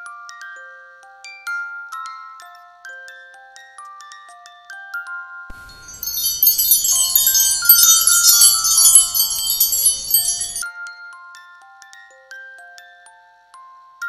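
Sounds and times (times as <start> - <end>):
chiming background tune: 5.5 - 10.6
wind-chime shimmer: 5.5 - 10.6.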